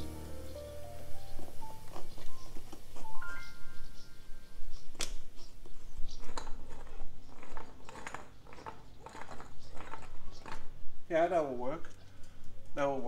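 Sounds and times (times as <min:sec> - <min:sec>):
board scraping wet concrete: 0:05.7 - 0:10.8.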